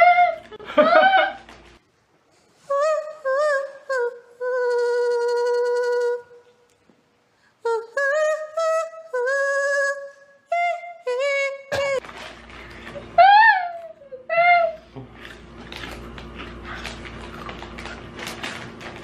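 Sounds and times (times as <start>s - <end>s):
woman singing unaccompanied: 2.6s - 6.6s, 7.6s - 12.0s.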